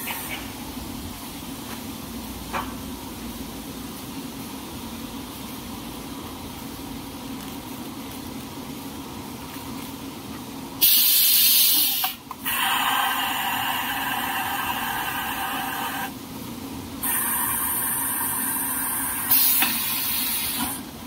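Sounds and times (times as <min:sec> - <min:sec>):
compressed air hissing: 0:00.0 - 0:00.7, 0:10.8 - 0:16.2, 0:17.0 - 0:20.9.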